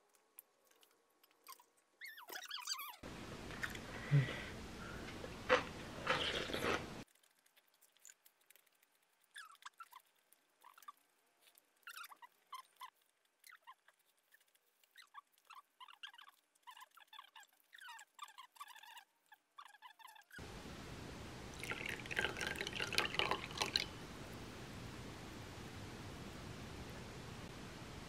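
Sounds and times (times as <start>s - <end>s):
chewing and wet mouth clicks: 6.1s - 17.2s
steady hiss: 20.4s - 28.0s.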